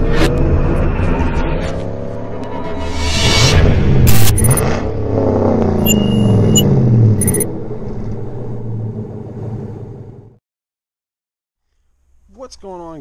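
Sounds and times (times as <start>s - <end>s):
vehicle engine revving: 3.7s - 10.4s
electronic glitch blips: 4.0s - 4.8s, 5.7s - 7.5s.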